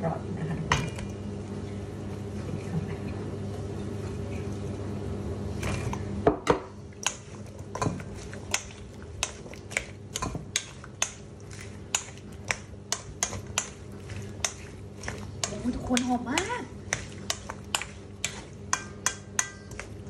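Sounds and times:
low steady hum: 0.0 - 20.0
wooden spoon scraping steel bowl: 7.1 - 20.0.

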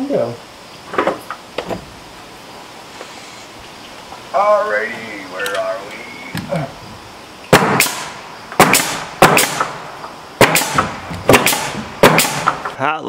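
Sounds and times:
nail gun firing into wood: 7.5 - 9.8, 10.4 - 12.8.

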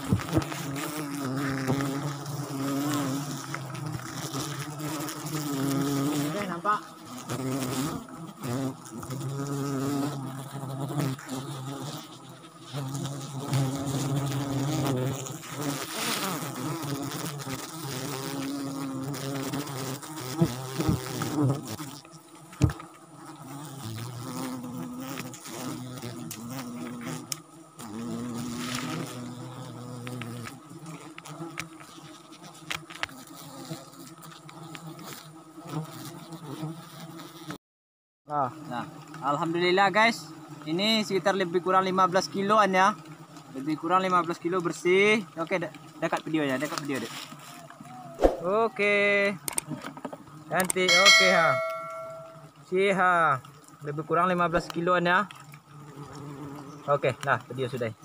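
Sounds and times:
bees buzzing: 0.0 - 37.6, 49.4 - 52.7, 55.4 - 57.1.

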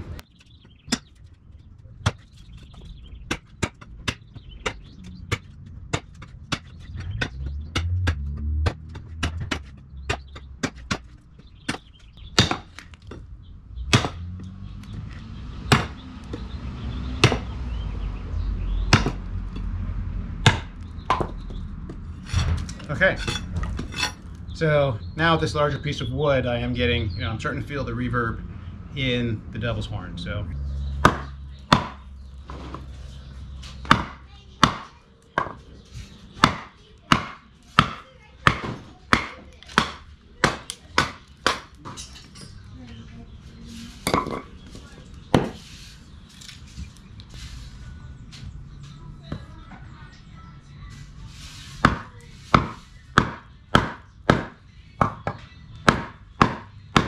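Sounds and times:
knife chopping into wood: 7.8 - 11.1.

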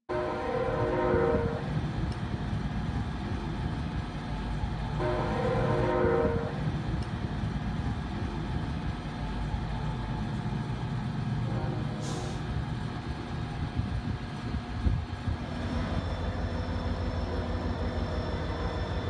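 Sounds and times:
locomotive air horn blast: 0.1 - 1.7, 5.0 - 6.7, 11.5 - 12.5
train rumbling: 0.1 - 19.0.

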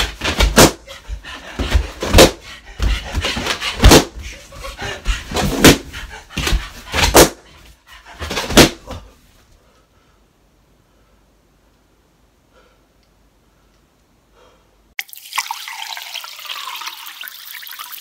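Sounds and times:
man panting: 0.6 - 11.3.

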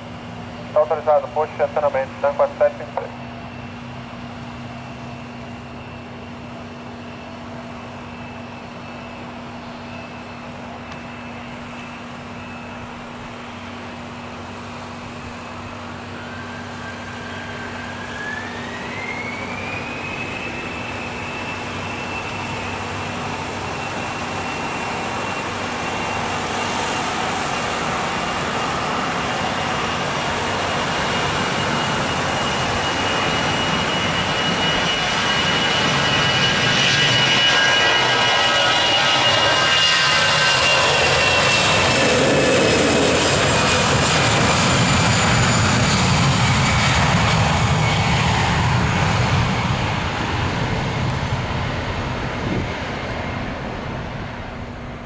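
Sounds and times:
jet engines whining: 0.0 - 55.0.

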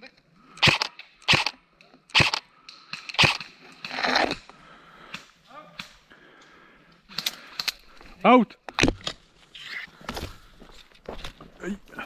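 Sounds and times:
airsoft rifle shots: 0.6 - 2.4, 3.0 - 4.0.

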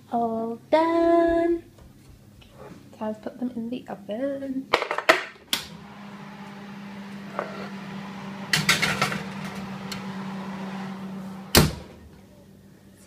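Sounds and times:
oven humming: 5.4 - 13.0.

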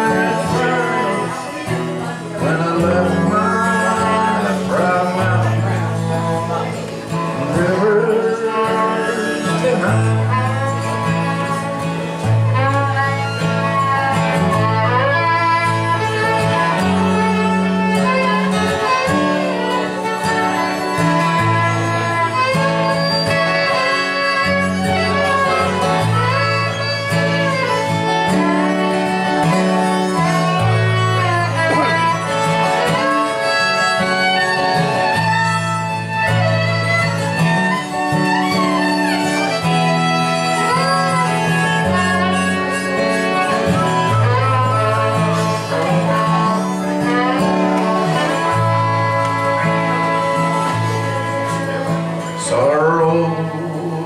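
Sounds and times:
man singing: 0.0 - 11.8, 40.5 - 49.7, 52.2 - 54.0
bowed fiddle: 0.0 - 54.0
harmonica: 0.0 - 54.0
strummed acoustic guitar: 0.0 - 54.0.

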